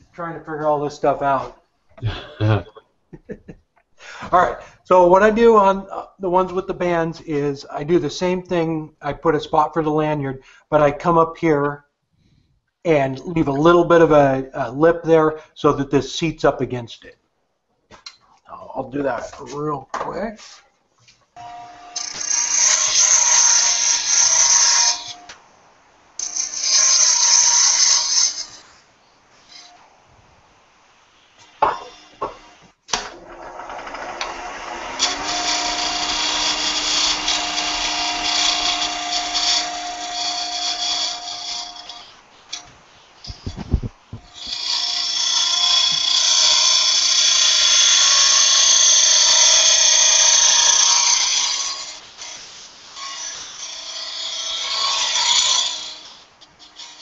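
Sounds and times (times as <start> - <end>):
tool cutting wood on lathe: 21.4 - 25.4, 26.2 - 28.7, 31.5 - 42.6, 43.2 - 57.0
lathe running: 33.1 - 42.6, 44.2 - 52.3.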